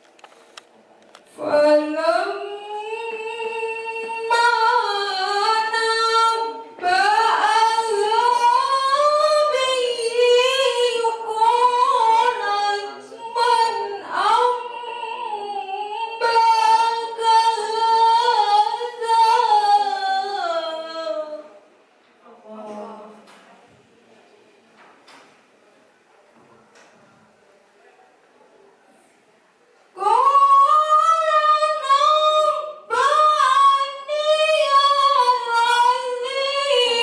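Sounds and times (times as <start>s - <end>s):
woman chanting melodically: 1.3s - 21.6s, 22.2s - 23.4s, 30.0s - 37.0s.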